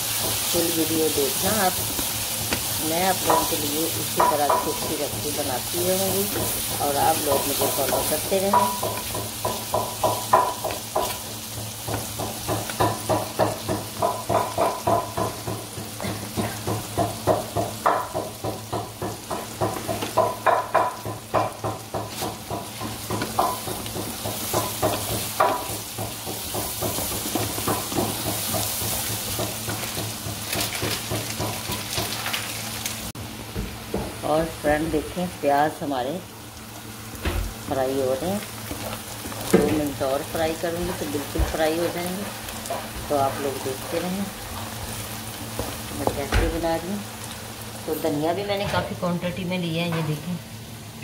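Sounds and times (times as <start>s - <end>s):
onions sizzling in oil: 0.0s - 51.0s
spatula stirring and scraping: 38.4s - 46.3s.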